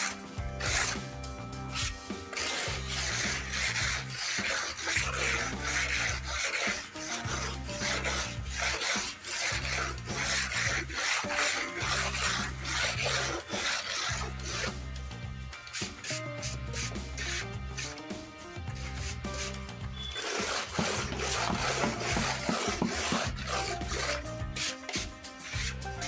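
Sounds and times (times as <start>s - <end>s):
background music: 0.0s - 26.0s
putty knife scraping wet paint: 0.0s - 26.0s.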